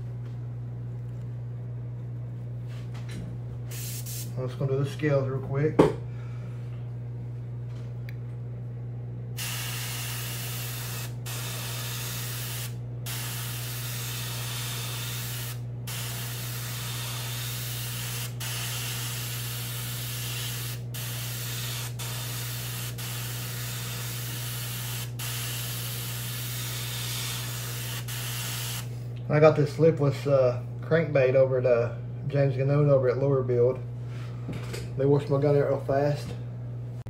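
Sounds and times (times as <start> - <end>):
steady low hum: 0.0 - 37.0
airbrush spraying hiss: 3.7 - 4.4, 9.4 - 28.9.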